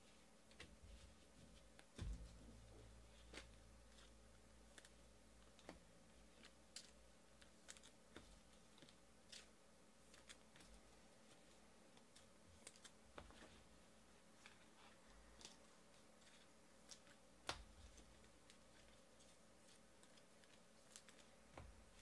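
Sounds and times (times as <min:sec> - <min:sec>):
soft thump: 0:02.0 - 0:02.4.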